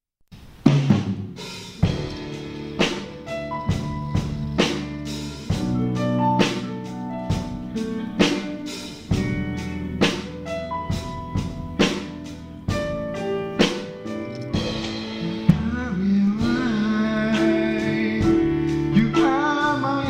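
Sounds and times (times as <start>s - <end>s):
drum hits: 0.6s - 6.7s, 10.0s - 16.9s
live band playing pop: 0.7s - 20.0s.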